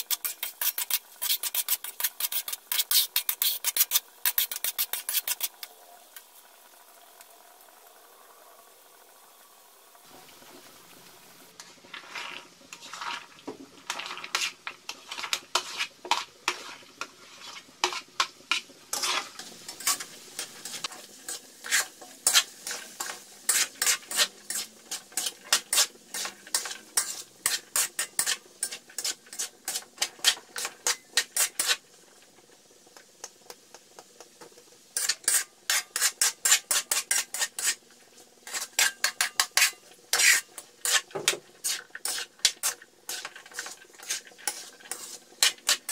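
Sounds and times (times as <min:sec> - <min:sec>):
metal spatula scraping a wok: 0:00.0 - 0:05.7, 0:11.6 - 0:31.8, 0:35.0 - 0:45.9
frying sizzle: 0:00.0 - 0:45.9.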